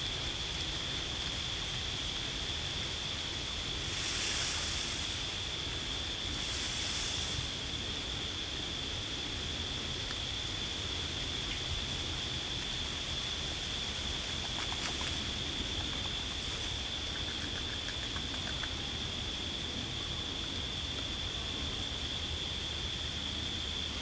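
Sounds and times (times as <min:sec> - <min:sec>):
beaver rustling splashes: 0:14.3 - 0:18.7.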